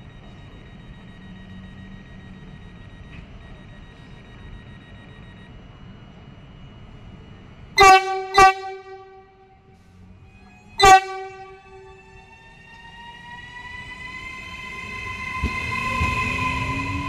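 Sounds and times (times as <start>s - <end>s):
standing train humming: 0.0s - 17.0s
train horn toots: 7.8s - 9.9s, 10.8s - 12.0s.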